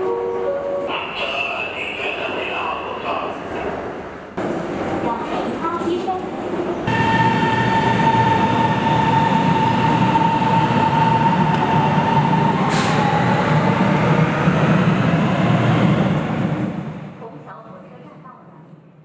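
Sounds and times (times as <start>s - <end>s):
train wheels rumbling on rail: 1.1s - 17.3s
train high whine: 6.9s - 16.8s.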